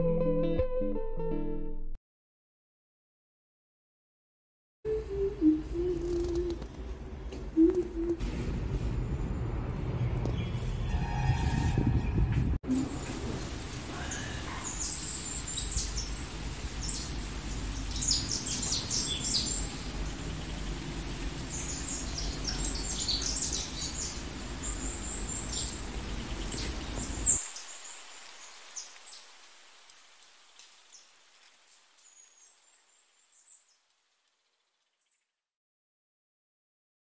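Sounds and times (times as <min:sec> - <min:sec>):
small birds chirping: 0:13.8 - 0:29.4.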